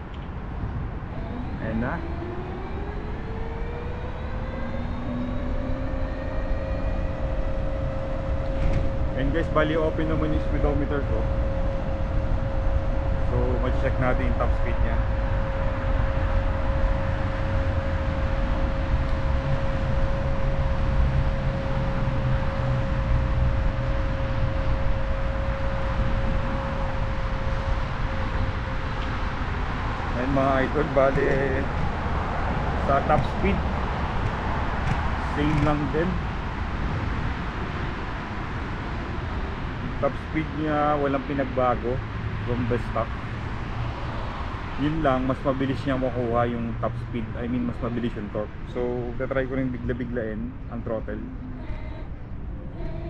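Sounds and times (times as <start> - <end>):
wind rumbling on microphone: 0.0 - 53.0
electric motor whine: 1.1 - 40.0.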